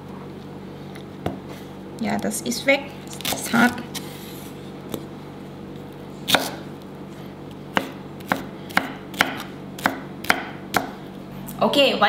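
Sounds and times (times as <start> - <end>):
knife striking chopping board: 6.3 - 6.6, 7.7 - 11.0.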